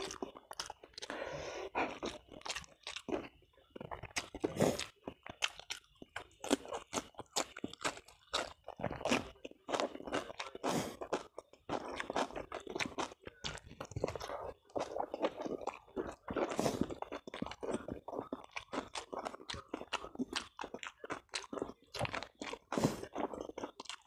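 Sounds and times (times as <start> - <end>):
chewing with crisp crunches: 0.0 - 24.0.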